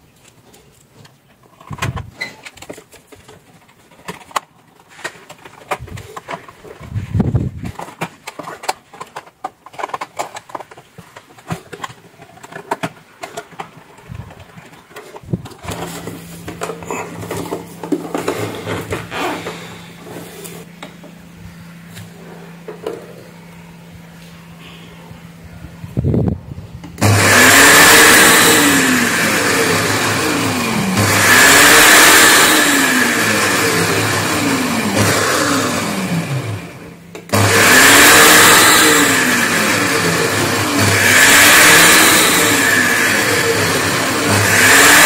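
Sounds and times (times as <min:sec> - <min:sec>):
plastic clicks and clatter: 0:00.2 - 0:06.9, 0:07.6 - 0:19.1
steady low hum: 0:03.6 - 0:27.1.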